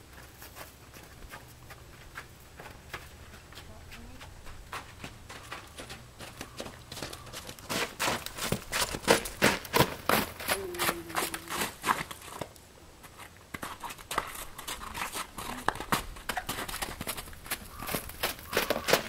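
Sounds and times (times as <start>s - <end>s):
horse hoofbeats on crunchy snow: 0.0s - 19.0s.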